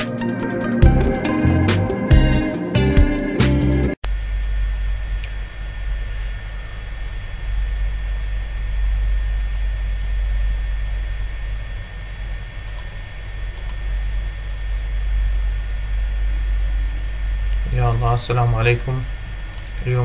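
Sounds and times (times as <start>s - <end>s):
low electrical hum with hiss: 4.0s - 20.0s.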